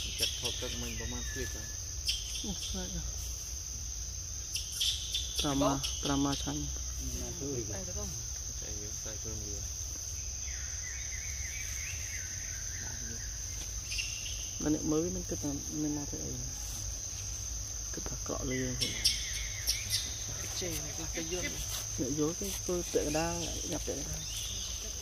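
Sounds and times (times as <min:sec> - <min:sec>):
people talking: 0:00.0 - 0:01.7, 0:02.4 - 0:03.1, 0:05.4 - 0:09.6, 0:14.6 - 0:16.5, 0:18.0 - 0:19.0, 0:20.3 - 0:25.0
insects droning: 0:00.0 - 0:25.0.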